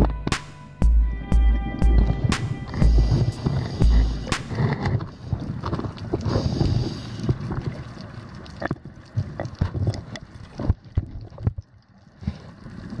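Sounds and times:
underwater knocks and thumps: 0:00.0 - 0:06.0, 0:08.6 - 0:11.7.

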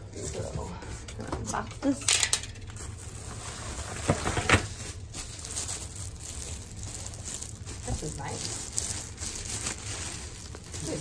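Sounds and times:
plastic bag rustling: 0:02.6 - 0:11.0.

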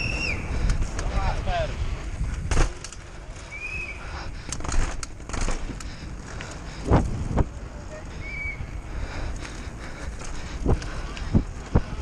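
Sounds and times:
wind rushing on microphone: 0:00.0 - 0:02.8, 0:05.6 - 0:09.4, 0:10.0 - 0:12.0
bike rattling: 0:00.0 - 0:12.0
tyre noise: 0:00.0 - 0:12.0.

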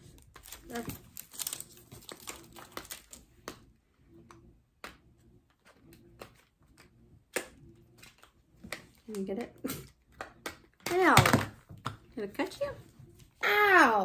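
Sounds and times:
cardboard packaging crinkles: 0:00.0 - 0:03.4.

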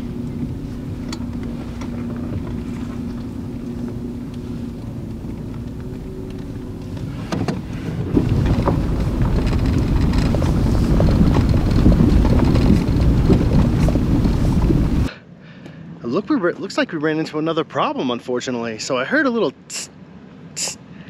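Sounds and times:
car engine hum: 0:00.0 - 0:15.1
tyres rumbling over rocks: 0:00.0 - 0:15.1.

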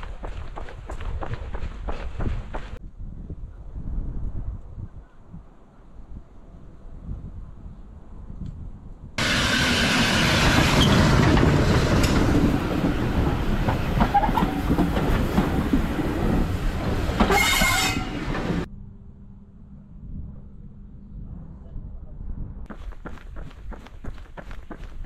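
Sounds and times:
rail joint clicks: 0:09.2 - 0:18.7
train wheels rumbling on rails: 0:09.2 - 0:18.7.

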